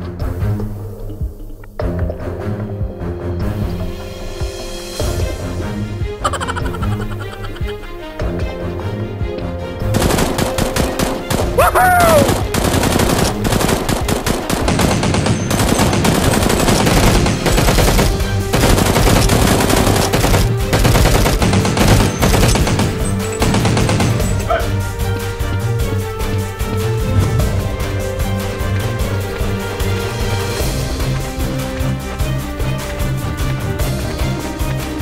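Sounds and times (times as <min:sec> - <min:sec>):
background music: 0:00.0 - 0:35.0
automatic gunfire bursts: 0:10.0 - 0:24.4.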